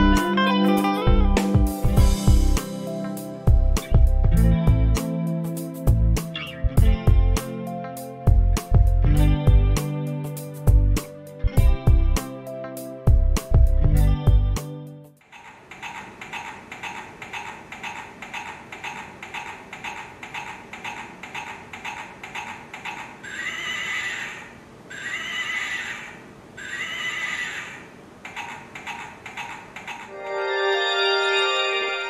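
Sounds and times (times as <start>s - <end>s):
horse whinnying: 23.3s - 27.9s.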